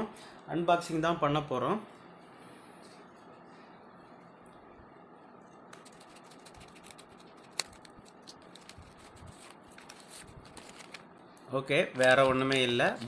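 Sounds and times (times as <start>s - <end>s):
packaging crinkling: 5.8s - 11.2s.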